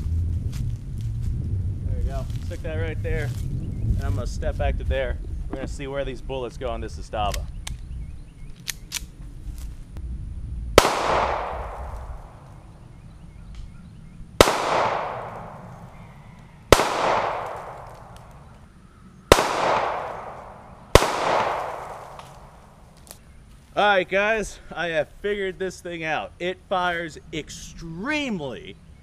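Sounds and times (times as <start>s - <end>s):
pistol shots echoing: 10.8s - 12.4s, 14.4s - 16.1s, 16.7s - 18.5s, 19.3s - 22.6s.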